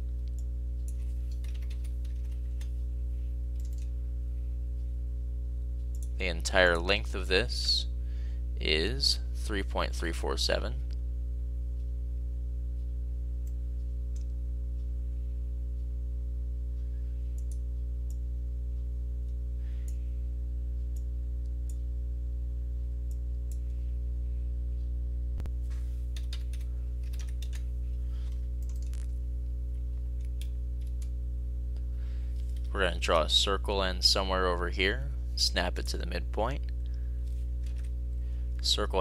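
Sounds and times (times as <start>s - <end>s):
low electrical hum: 0.0s - 39.0s
keyboard and mouse clicks: 3.6s - 3.9s, 26.2s - 27.6s, 28.6s - 29.1s.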